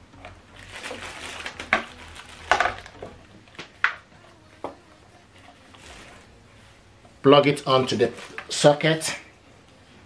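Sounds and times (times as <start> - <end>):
plastic packaging rustling: 0.2 - 4.0, 5.4 - 6.4, 7.6 - 9.0.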